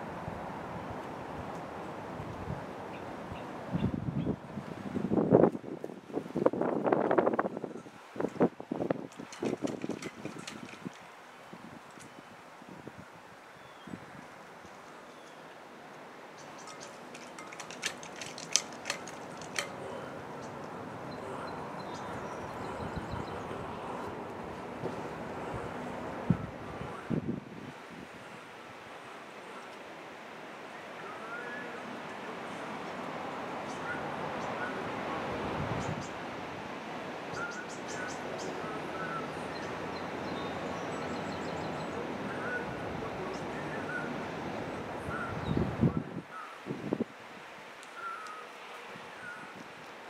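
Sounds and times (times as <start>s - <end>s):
strong wind blowing: 0.0s - 14.4s, 16.9s - 28.4s, 32.9s - 37.4s, 41.5s - 47.4s
small birds chirping: 16.3s - 24.1s
sharp clicks: 16.6s - 19.8s.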